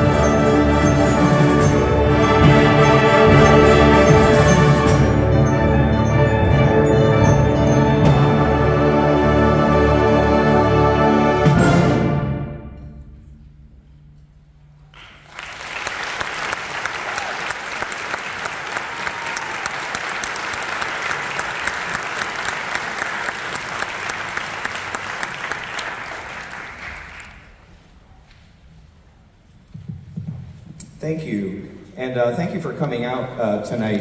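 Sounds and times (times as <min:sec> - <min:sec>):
audience applause: 0:15.0 - 0:27.6.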